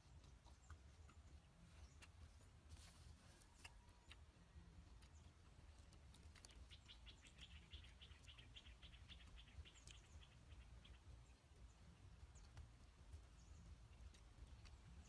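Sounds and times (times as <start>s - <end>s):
small bird chattering call: 6.5s - 11.2s.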